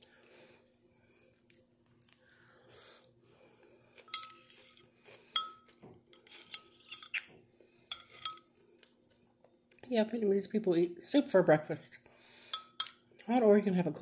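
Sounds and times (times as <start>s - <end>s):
spoon clinking against bowl: 4.1s - 4.4s, 5.4s - 5.8s, 7.9s - 8.5s, 12.5s - 13.0s.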